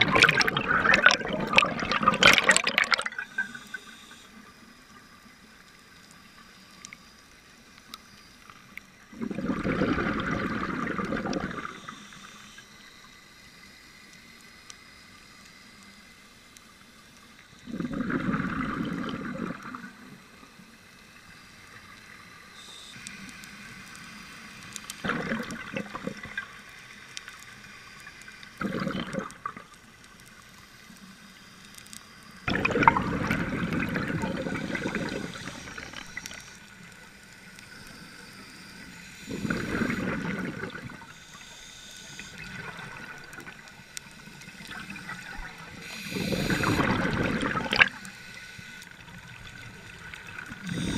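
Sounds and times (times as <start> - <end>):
exhaled breath bubbling underwater: 0.0 - 3.9, 9.1 - 12.0, 17.6 - 19.9, 25.0 - 26.4, 28.6 - 29.7, 32.5 - 36.5, 39.2 - 41.4, 44.6 - 48.1, 49.8 - 50.9
faint watery hiss: 0.1 - 50.9.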